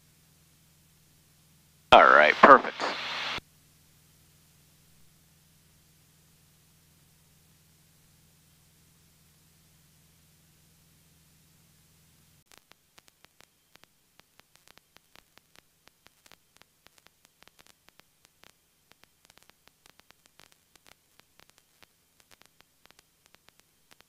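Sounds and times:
faint crackling clicks: 12.5 - 24.0.

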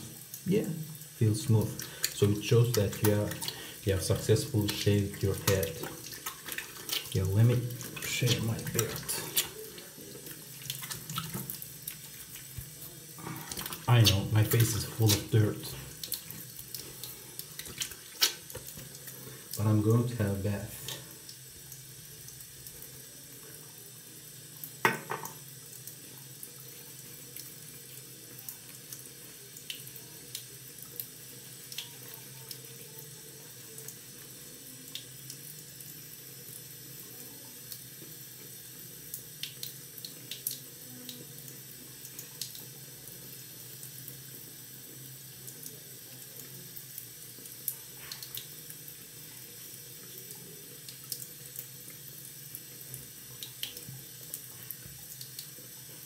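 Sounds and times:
tap running into sink: 17.6 - 19.0, 24.8 - 25.4.

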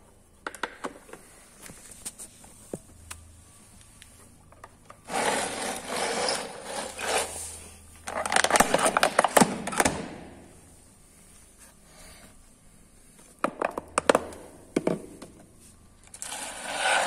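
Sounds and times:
plastic bottle crinkling and crackling: 8.0 - 10.0.

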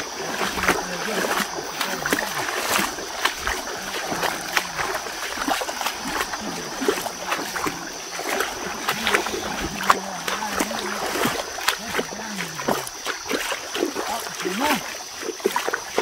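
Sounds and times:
water splashing in river: 0.0 - 16.0.

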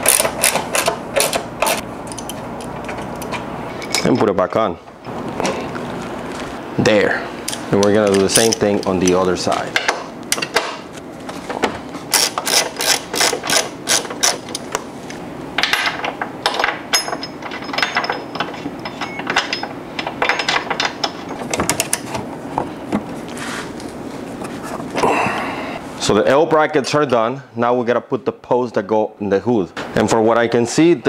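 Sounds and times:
ratchet wrench clicking: 12.1 - 14.6.

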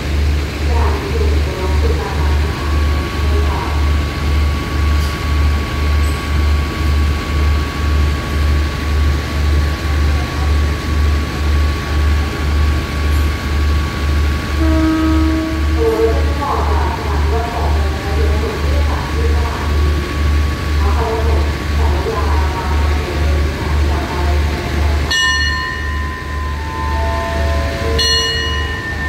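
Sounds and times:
diesel train idling: 0.0 - 29.0
train horn: 14.5 - 16.8, 26.6 - 29.0.

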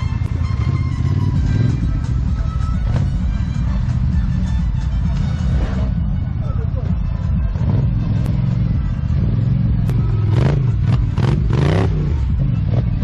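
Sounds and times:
atv engine revving: 0.0 - 4.5, 7.3 - 13.0.

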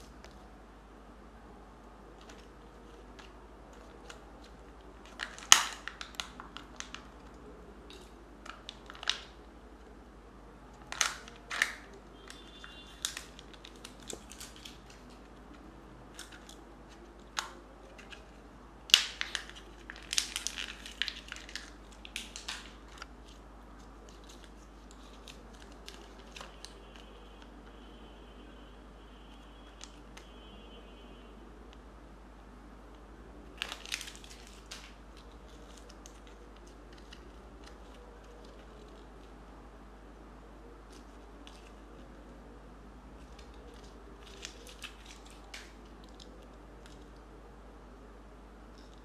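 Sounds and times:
packaging crinkling: 2.1 - 9.5, 10.8 - 27.5, 33.5 - 39.4, 40.8 - 42.2, 43.1 - 47.2.

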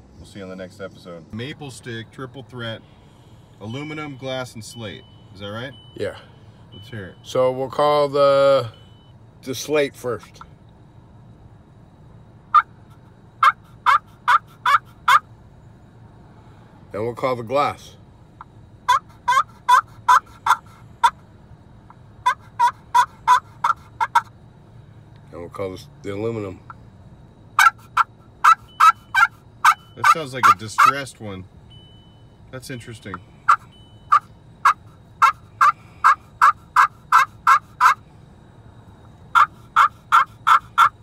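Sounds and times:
turkey call yelps: 12.5 - 12.8, 13.4 - 15.3, 18.8 - 21.2, 22.2 - 24.3, 27.6 - 31.0, 33.4 - 38.0, 39.3 - 41.0.

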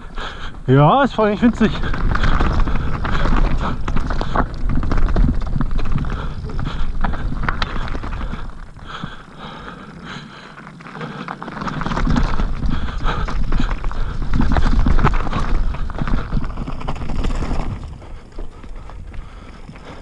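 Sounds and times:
low rumble: 0.0 - 9.2
tyres crunching over gravel: 0.0 - 20.0.

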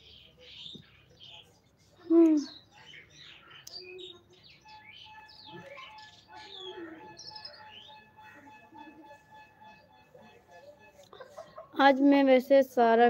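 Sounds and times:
small birds chirping: 0.0 - 12.3
faint steady tone: 4.7 - 12.1.

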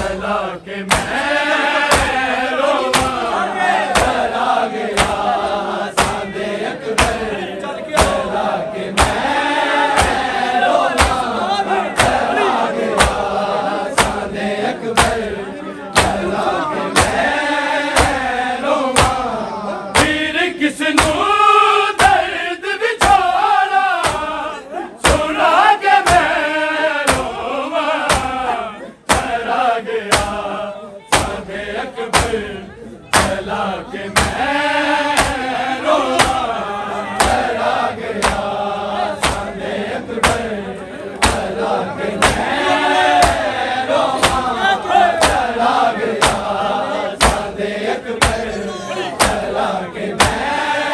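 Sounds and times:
men chanting in chorus: 0.0 - 50.9
rhythmic chest-beating strikes: 0.0 - 50.9.

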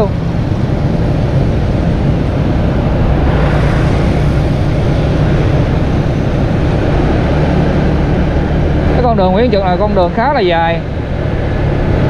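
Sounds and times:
road noise: 0.0 - 12.0
vehicle engine hum: 0.0 - 12.0.

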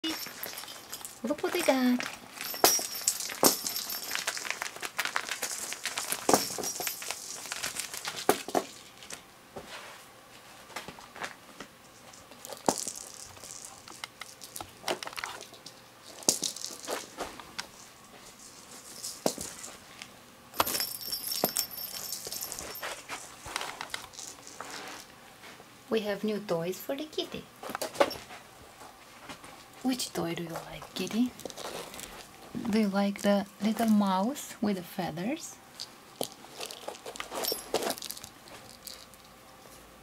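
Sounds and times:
bells jingling: 0.0 - 4.6, 20.7 - 23.0
cat toys clicking and rattling: 0.0 - 9.2, 11.9 - 19.7, 20.6 - 25.0, 36.2 - 39.2.

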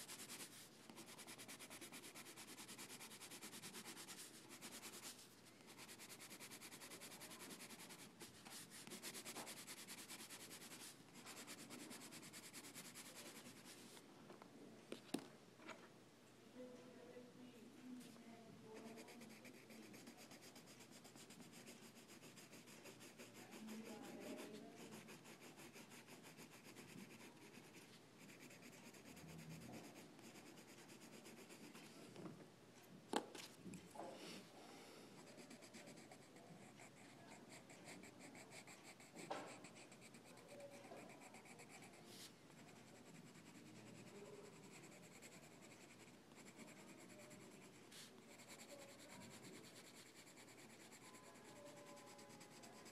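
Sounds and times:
rubbing and scratching on surface: 0.0 - 14.0, 18.7 - 32.0, 35.2 - 52.9.

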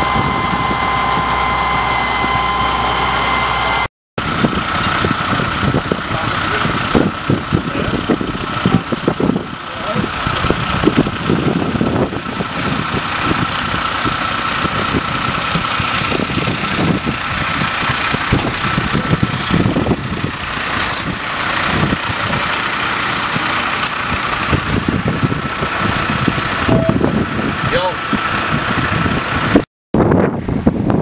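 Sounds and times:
thin steady whine: 0.0 - 3.9
fire engine running: 0.0 - 31.0.

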